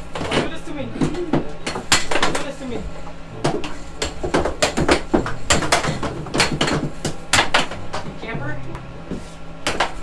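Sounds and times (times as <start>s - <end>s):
air hockey puck clacking: 0.2s - 2.6s, 3.4s - 8.4s, 9.6s - 10.0s.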